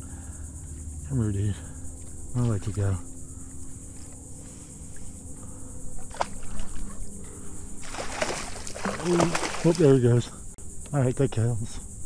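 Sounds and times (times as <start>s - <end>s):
high-pitched insect buzz: 0.0s - 12.0s
fish splashing at water surface: 6.0s - 6.9s, 7.8s - 10.0s.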